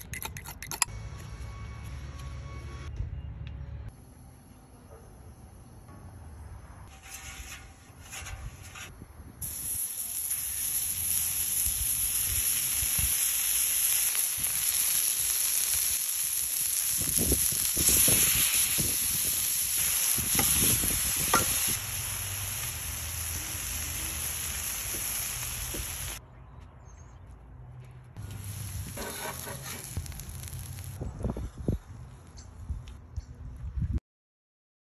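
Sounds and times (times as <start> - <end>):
meat and onions sizzling on griddle: 9.4 - 26.2, 28.2 - 31.0.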